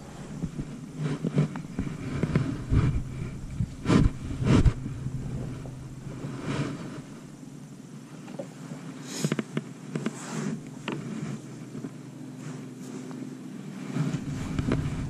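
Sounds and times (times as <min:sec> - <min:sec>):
wind buffeting microphone: 0:00.0 - 0:07.9, 0:13.9 - 0:15.0
low motor hum: 0:00.0 - 0:09.0, 0:09.6 - 0:15.0.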